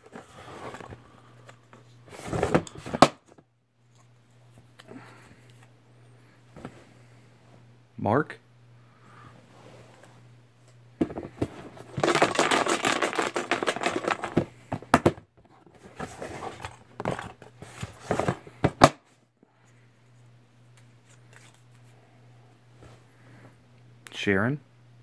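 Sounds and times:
faint steady hum: 0.0 - 25.0
paper slips rustling: 12.0 - 14.4.

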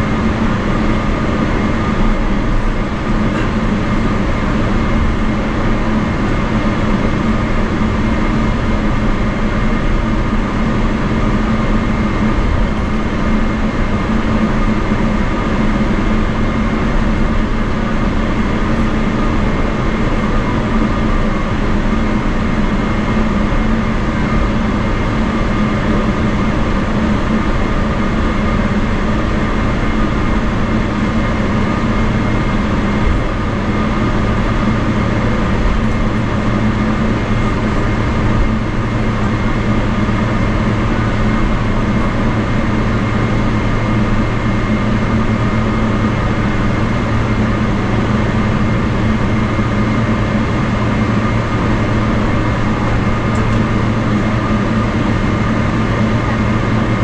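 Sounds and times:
aircraft taxiing rumble: 0.0 - 57.0
jet engine idling hum: 0.0 - 57.0.

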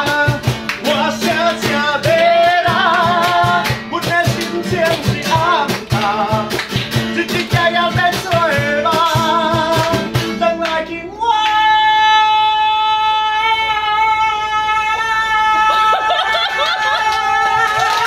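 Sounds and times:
strummed acoustic guitar: 0.0 - 10.8
man singing: 0.0 - 17.7.

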